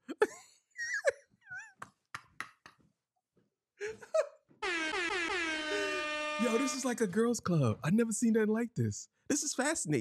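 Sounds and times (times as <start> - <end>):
loud long horn tone: 4.6 - 7.0.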